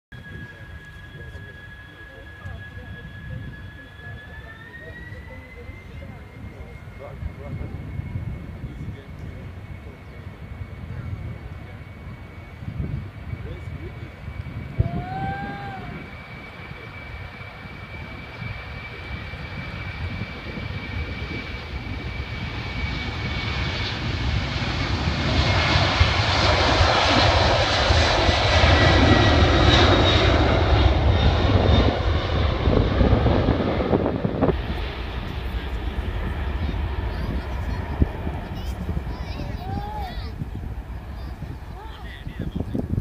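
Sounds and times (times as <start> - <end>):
jet engine noise: 0.1 - 43.0
faint high whine: 0.2 - 12.7.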